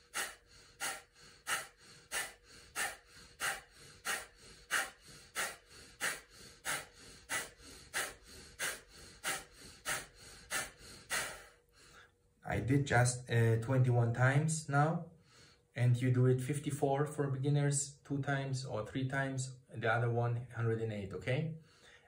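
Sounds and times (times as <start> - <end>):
man's forceful nasal exhalations: 0.0 - 12.1
quiet inhales: 0.0 - 12.2, 15.1 - 15.8, 21.6 - 22.0.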